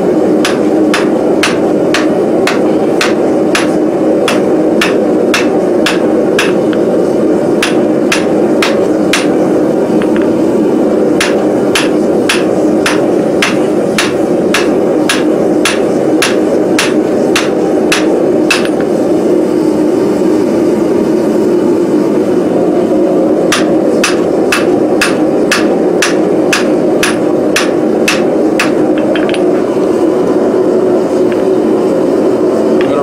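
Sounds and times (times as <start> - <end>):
loud steady rushing noise: 0.0 - 33.0
hammer striking steel on anvil: 0.4 - 6.8, 7.6 - 9.4, 11.2 - 19.0, 23.5 - 29.5.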